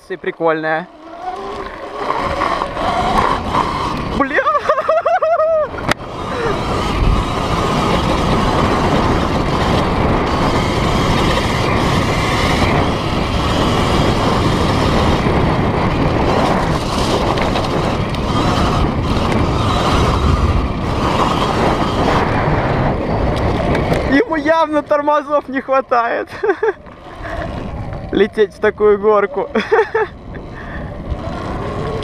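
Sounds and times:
wind on microphone: 0.8 - 32.0
tyres on loose stones: 5.9 - 22.4.

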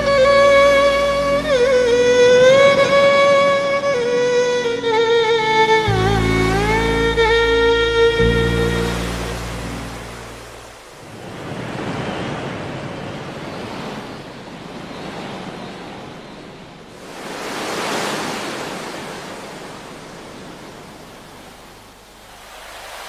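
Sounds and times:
sea waves breaking on beach: 8.1 - 23.0.

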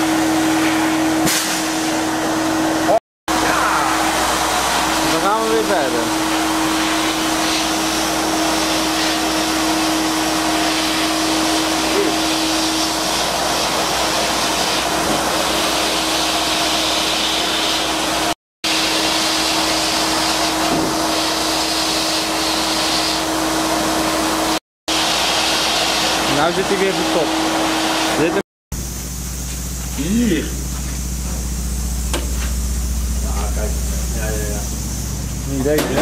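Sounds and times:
steady hum: 28.2 - 36.0.

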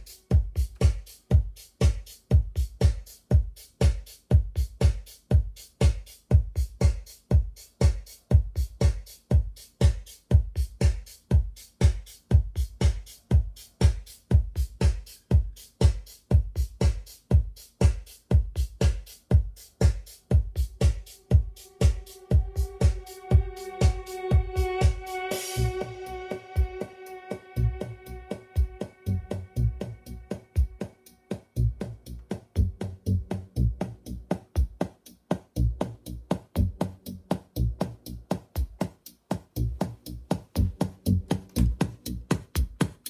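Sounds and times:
electronic dance music: 0.0 - 3.2, 5.9 - 35.5
deep kick drum beat: 0.0 - 43.0.

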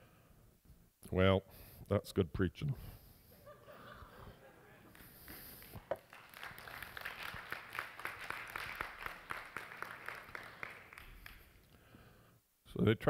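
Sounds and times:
crowd applauding: 4.9 - 11.6.

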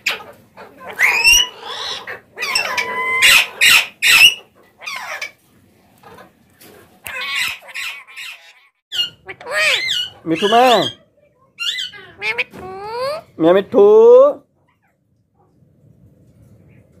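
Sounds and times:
parakeets squawking: 0.0 - 5.4, 7.0 - 13.4.

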